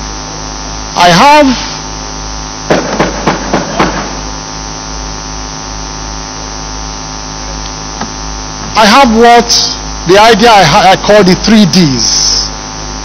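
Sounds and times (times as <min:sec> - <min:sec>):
electrical mains hum: 0:00.0 - 0:13.0
sharp knocks: 0:02.7 - 0:04.2.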